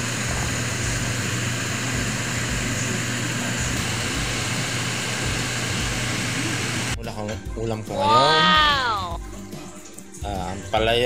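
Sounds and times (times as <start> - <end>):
steady mechanical hum: 0.0 - 7.0.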